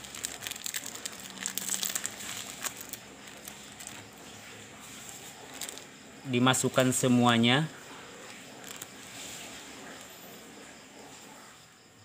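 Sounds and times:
plastic packet crinkling: 0.0 - 6.0, 6.6 - 10.2.

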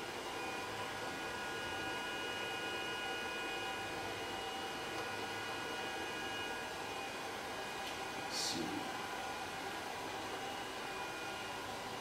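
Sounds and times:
electrical hum and hiss: 0.0 - 12.0.

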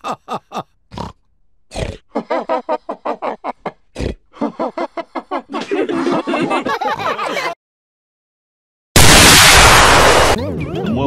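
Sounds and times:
loud pig snorts: 0.9 - 2.0, 4.0 - 4.2
cartoon pigs laughing: 1.8 - 7.6, 10.4 - 11.0.

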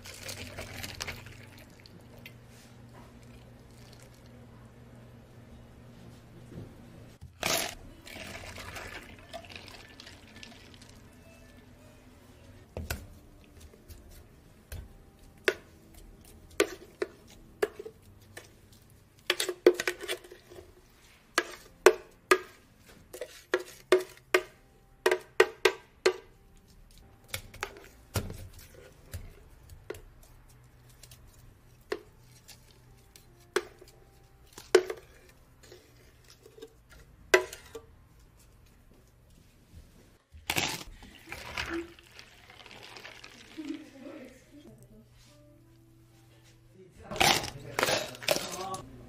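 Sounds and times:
utensils and cups clinking on steel: 47.1 - 48.8.

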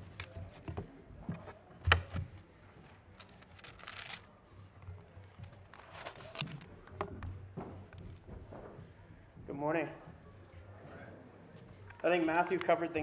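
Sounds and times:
papers rustling: 0.0 - 7.0.

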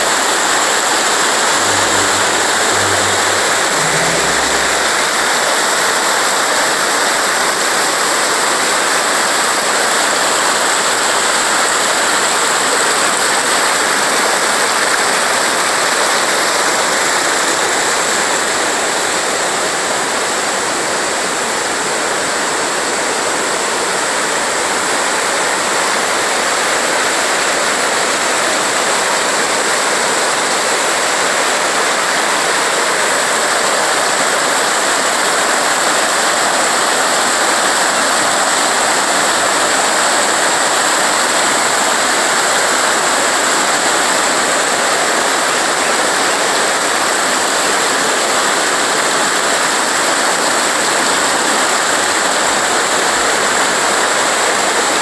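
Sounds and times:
river rapids rushing: 0.0 - 6.5.

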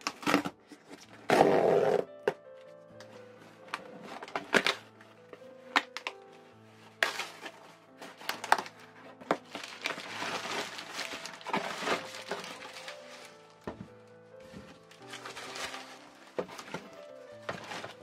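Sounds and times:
cardboard box tearing: 0.0 - 2.1, 7.0 - 8.7, 9.3 - 13.4, 15.0 - 18.0
background music: 0.0 - 18.0
bubble wrap crinkling: 0.0 - 18.0.

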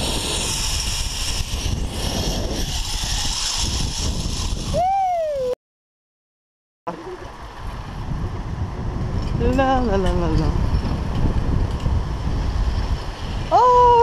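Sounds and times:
wind roaring over microphone: 0.0 - 5.5, 6.9 - 14.0
rising and falling tone: 1.8 - 5.6.

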